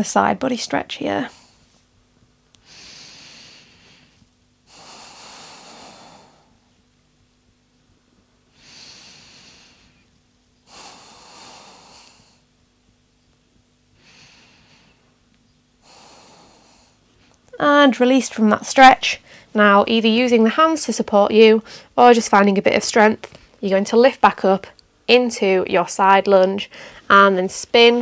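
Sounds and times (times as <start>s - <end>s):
woman breathing slowly: 1.3s - 1.9s, 2.6s - 6.8s, 8.5s - 12.6s, 13.9s - 15.2s, 15.8s - 17.4s, 19.2s - 19.6s, 21.6s - 22.0s, 26.7s - 27.1s.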